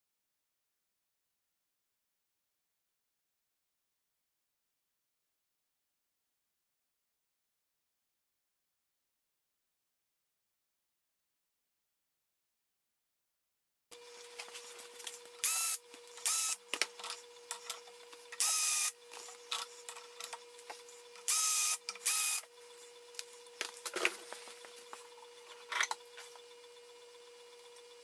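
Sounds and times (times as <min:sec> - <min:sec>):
faint steady hum: 0:13.9 - 0:28.0.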